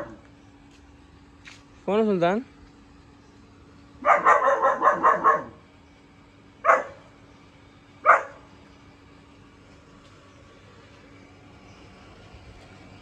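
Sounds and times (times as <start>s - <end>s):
puppy barking: 0.0s - 0.2s, 4.0s - 5.6s, 6.6s - 7.1s, 8.0s - 8.5s.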